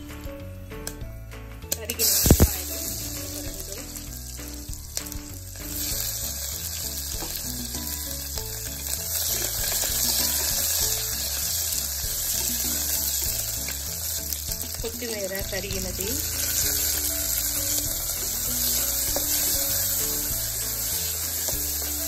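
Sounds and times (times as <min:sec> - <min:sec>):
onions sizzling in hot oil: 0:01.8 - 0:22.0
wooden spatula stirring: 0:02.4 - 0:22.0.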